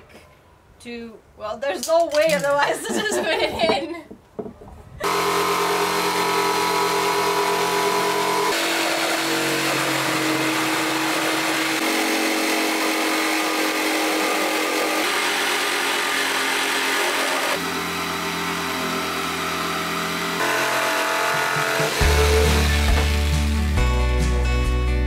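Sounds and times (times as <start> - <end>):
electric jigsaw cutting wood: 5.0 - 23.8.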